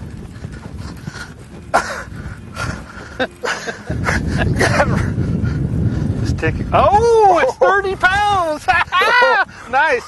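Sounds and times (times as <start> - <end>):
people exclaiming excitedly: 7.1 - 9.5.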